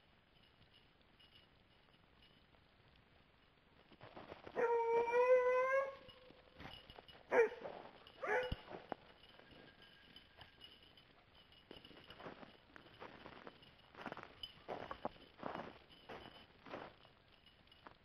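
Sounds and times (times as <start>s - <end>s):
hound baying: 4.5s - 9.4s
dog barking: 7.3s - 8.7s.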